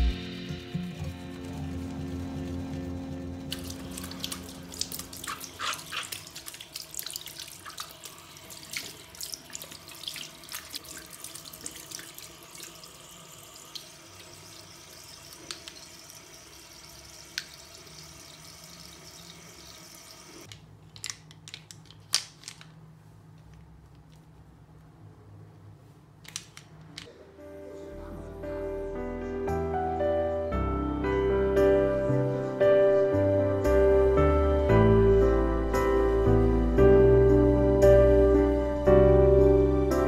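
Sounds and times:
brush scratching on soap tray: 0:05.3 - 0:06.4.

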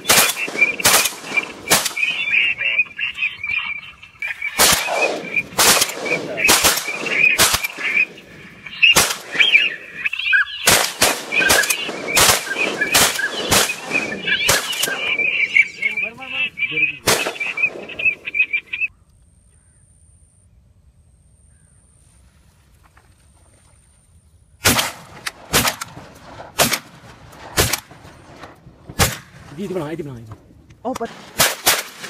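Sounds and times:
rapid shotgun fire: 0:00.0 - 0:02.2, 0:04.4 - 0:08.2, 0:08.8 - 0:09.8, 0:10.6 - 0:15.5, 0:17.0 - 0:18.2, 0:24.6 - 0:29.5, 0:31.1 - 0:32.0
waterfowl calling: 0:00.0 - 0:19.8.

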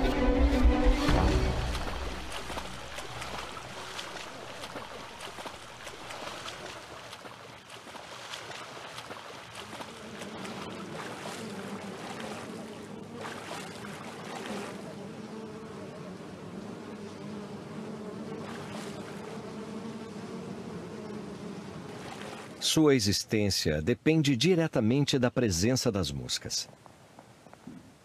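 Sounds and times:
flies buzzing: 0:00.0 - 0:22.8
water splashing and trickling: 0:00.9 - 0:15.0, 0:18.3 - 0:19.5, 0:21.7 - 0:22.7.

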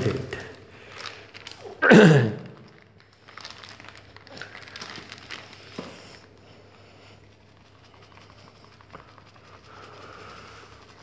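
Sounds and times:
paper packet crinkling: 0:00.0 - 0:11.0.

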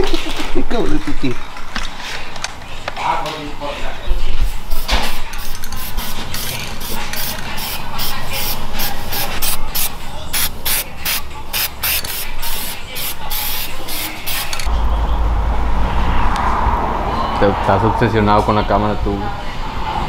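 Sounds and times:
compressed air hissing bursts: 0:04.7 - 0:14.7
deep low rumble: 0:14.7 - 0:18.2.

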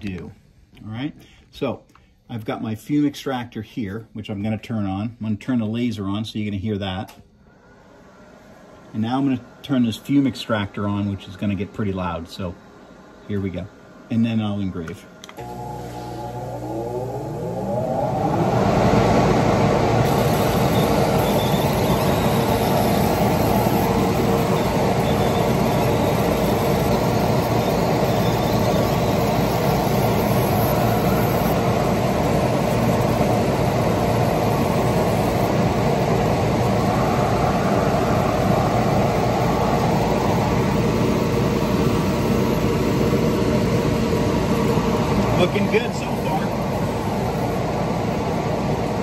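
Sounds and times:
extractor blower running: 0:15.3 - 0:49.0.

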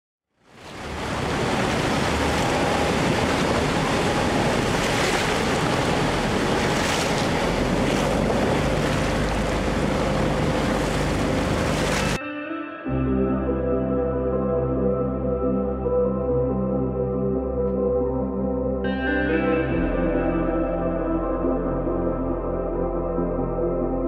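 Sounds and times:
waterfall rushing water: 0:00.5 - 0:12.2.

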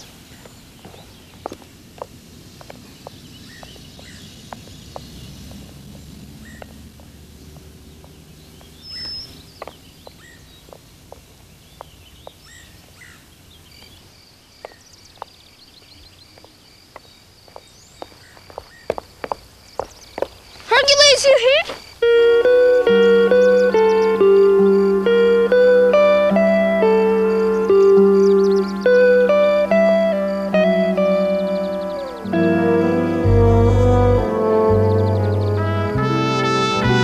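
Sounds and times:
birds chirping: 0:00.0 - 0:37.0.

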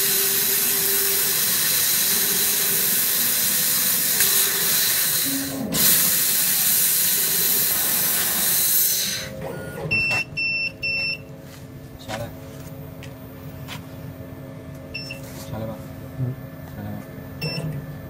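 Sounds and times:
laser cutter gas hissing: 0:00.0 - 0:09.4.

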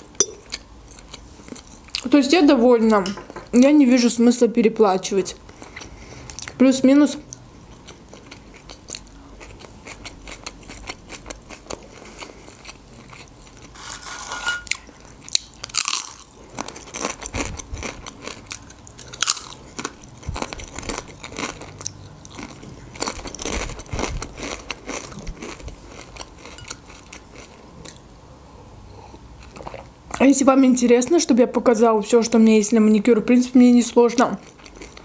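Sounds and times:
crunching tortilla chips: 0:09.4 - 0:27.5.

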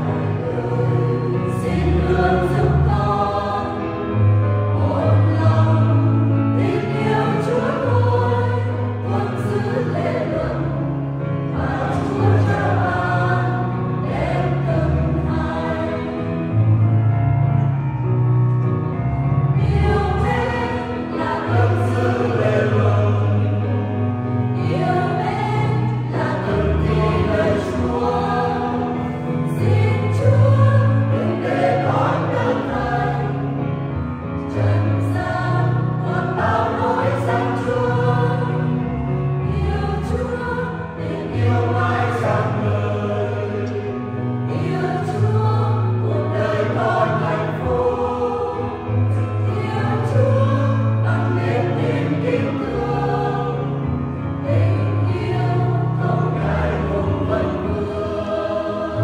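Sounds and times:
choir singing a hymn: 0:00.0 - 0:18.0, 0:18.6 - 0:59.0.

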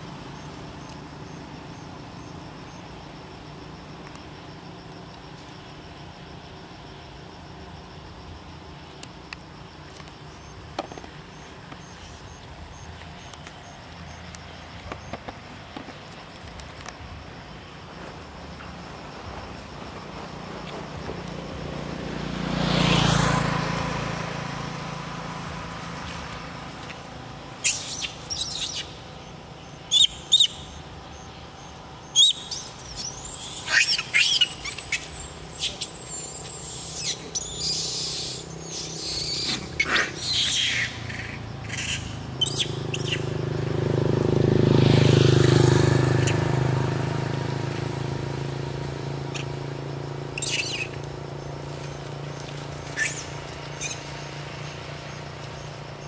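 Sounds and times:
vehicle passing by: 0:10.2 - 0:56.0
high-pitched chirps and squeals: 0:27.6 - 0:29.0, 0:29.9 - 0:30.8, 0:32.0 - 0:43.4, 0:50.3 - 0:51.0, 0:52.8 - 0:54.3.

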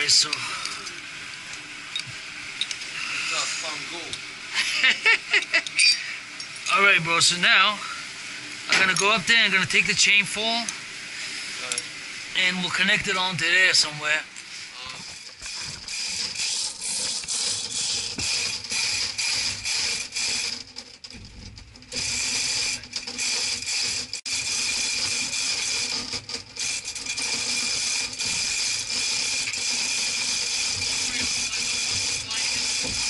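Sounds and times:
chain hoist ratchet clicking: 0:15.2 - 0:21.2, 0:21.8 - 0:33.0.

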